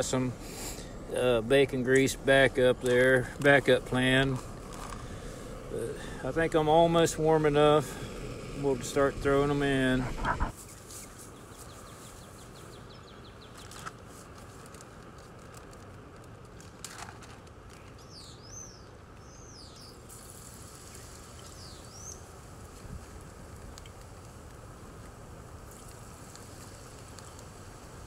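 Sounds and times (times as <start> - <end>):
stove burning with rushing noise: 0.0 - 12.2, 19.8 - 28.0.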